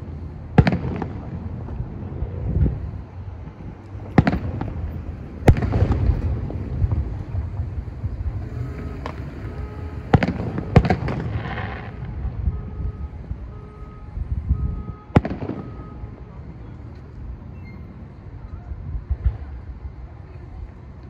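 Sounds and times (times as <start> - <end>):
fireworks booming: 0.4 - 14.0, 14.7 - 16.2
fireworks crackle: 3.4 - 12.7.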